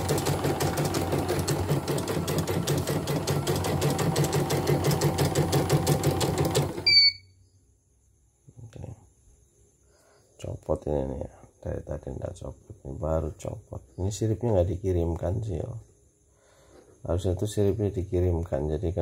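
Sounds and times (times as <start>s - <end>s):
embroidery machine stitching clatter: 0.0s - 6.8s
short electronic beep: 6.8s - 7.4s.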